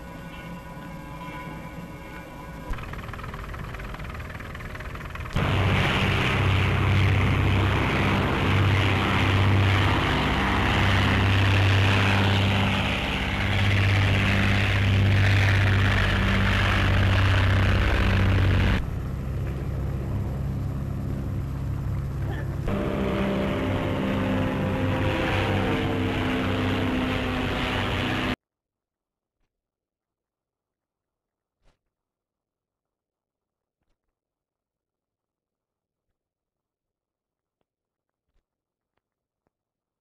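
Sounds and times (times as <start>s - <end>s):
aircraft propeller engines droning: 0.0s - 28.4s.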